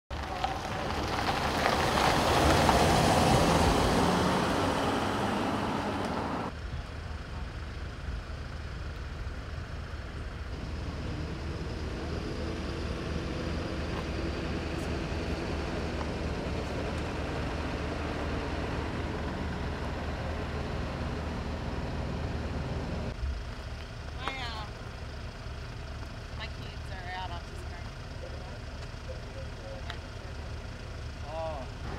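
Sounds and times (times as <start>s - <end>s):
ambulance driving past: 0.1s - 31.9s
fire truck engine idling: 6.5s - 31.9s.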